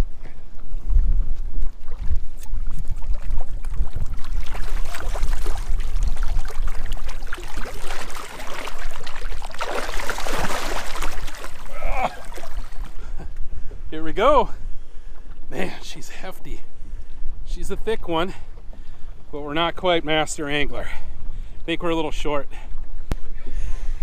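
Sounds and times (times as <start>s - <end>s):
fish splashing in water: 1.8s - 13.0s.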